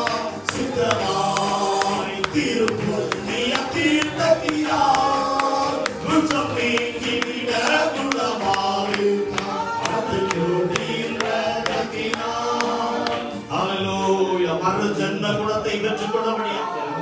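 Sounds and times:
sharp percussive taps: 0:00.0 - 0:13.2
men singing through a pa: 0:00.0 - 0:17.0.

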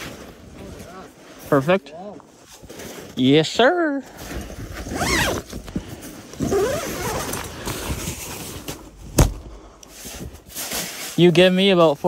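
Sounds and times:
zipper being opened: 0:04.8 - 0:05.5, 0:06.4 - 0:08.2.

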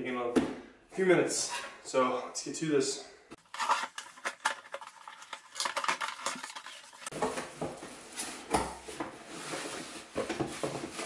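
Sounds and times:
paper rustling: 0:03.4 - 0:07.1.

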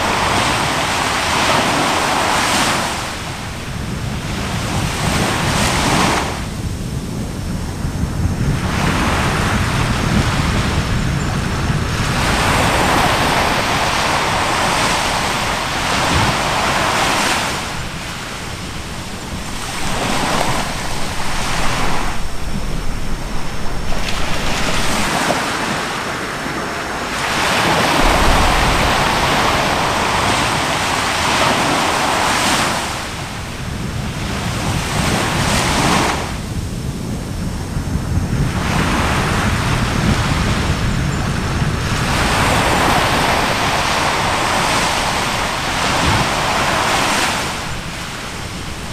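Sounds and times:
surf washing onto shore: 0:00.0 - 0:48.9
wind buffeting microphone: 0:00.0 - 0:48.9.

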